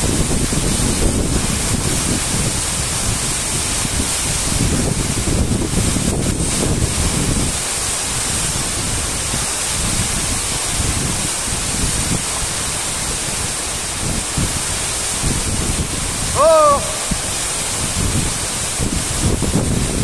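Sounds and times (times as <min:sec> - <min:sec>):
wind buffeting microphone: 0:00.0 - 0:07.7, 0:08.3 - 0:20.0
waterfall rushing: 0:00.2 - 0:20.0.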